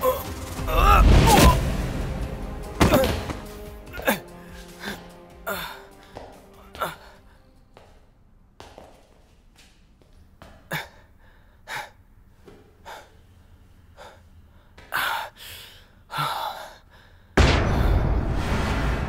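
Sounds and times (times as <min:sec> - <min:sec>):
loud music: 0:00.0 - 0:06.7
person gasping and breathing hard: 0:02.8 - 0:07.5, 0:10.4 - 0:17.4.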